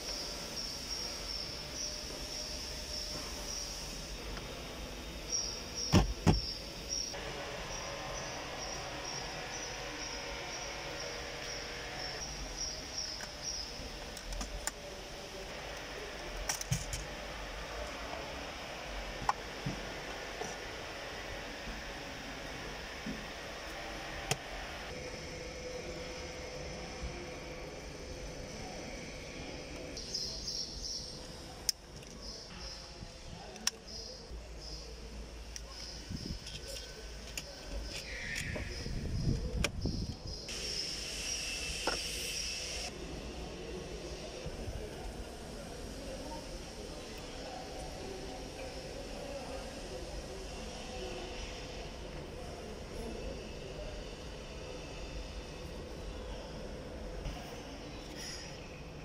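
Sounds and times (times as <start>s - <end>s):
steady hiss: 40.4s - 56.6s.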